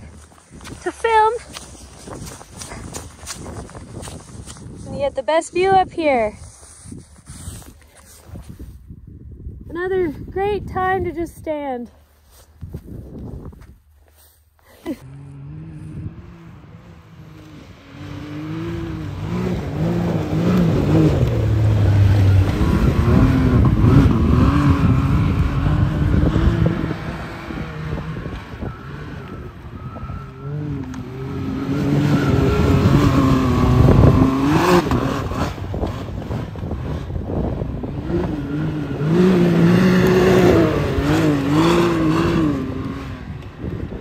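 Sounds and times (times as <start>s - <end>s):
engine revving: 15.0s - 44.0s.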